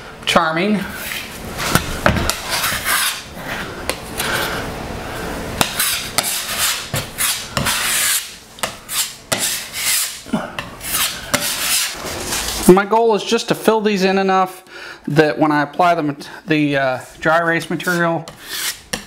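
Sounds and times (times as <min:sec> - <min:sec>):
putty knife scraping: 0:00.9 - 0:04.3, 0:05.6 - 0:12.6, 0:17.8 - 0:19.0.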